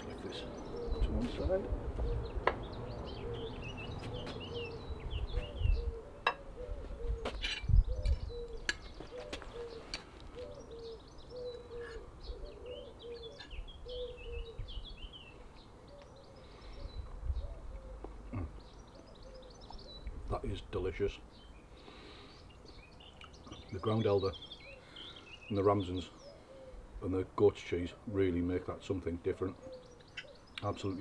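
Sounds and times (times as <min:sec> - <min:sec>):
small birds chirping: 0:00.0 - 0:31.0
pigeon cooing: 0:00.2 - 0:02.4, 0:03.0 - 0:14.9, 0:15.8 - 0:20.0, 0:26.2 - 0:27.0, 0:29.4 - 0:30.5.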